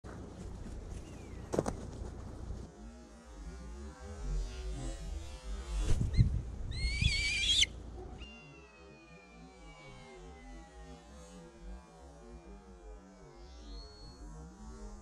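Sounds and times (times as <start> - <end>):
low wind rumble: 0.1 - 2.9, 5.7 - 8.2
bird of prey whistling call: 6.1 - 10.3.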